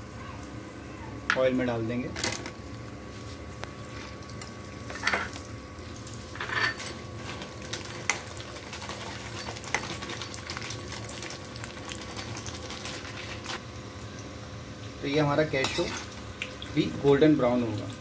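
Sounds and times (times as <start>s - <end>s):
nuts sizzling in hot oil: 4.2s - 18.0s
spoon clinking and scraping pan: 6.4s - 7.0s.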